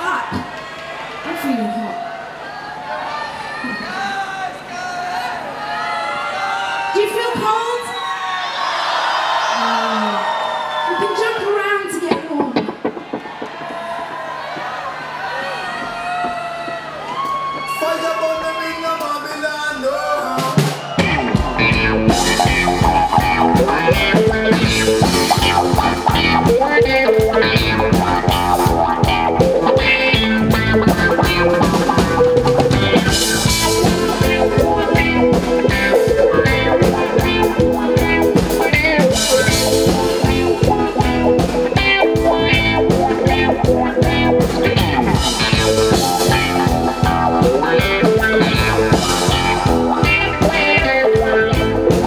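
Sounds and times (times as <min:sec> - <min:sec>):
live rock band playing: 0:20.2 - 0:52.0
steady drum beat: 0:20.4 - 0:52.0.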